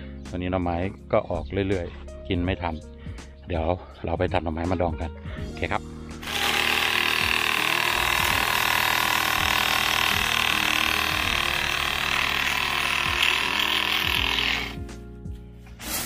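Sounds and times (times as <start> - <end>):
reciprocating saw cutting bamboo: 6.2 - 14.8.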